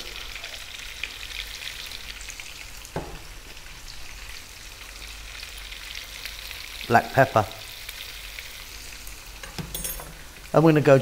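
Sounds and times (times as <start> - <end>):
onions sizzling in oil: 0.0 - 11.0
soft knock: 3.0 - 3.3.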